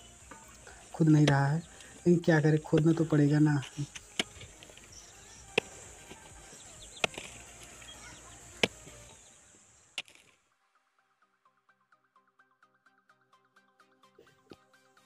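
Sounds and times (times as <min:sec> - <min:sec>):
mattock striking dry clay: 0:00.2 - 0:09.2, 0:10.0 - 0:10.3.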